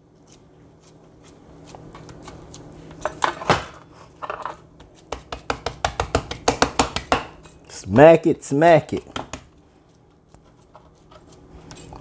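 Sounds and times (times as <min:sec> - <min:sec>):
hands slapping ground meat: 0:04.8 - 0:07.4, 0:09.0 - 0:10.7.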